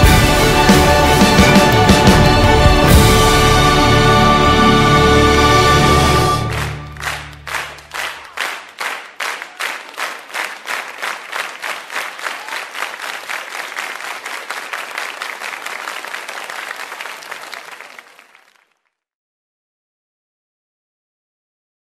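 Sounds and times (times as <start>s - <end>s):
audience applause: 0.0s - 18.8s
audience clapping in time: 6.0s - 18.9s.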